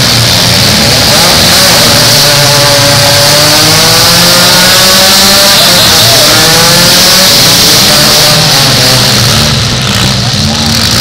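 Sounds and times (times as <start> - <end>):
car engines revving hard: 0.0 - 11.0.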